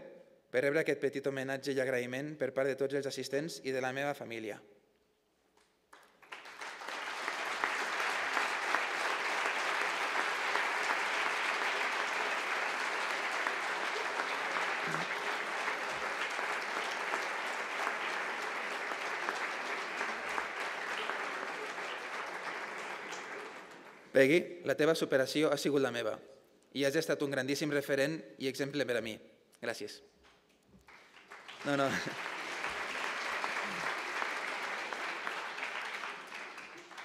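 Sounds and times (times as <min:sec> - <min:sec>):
audience applauding: 0:05.9 - 0:24.2, 0:30.8 - 0:37.0.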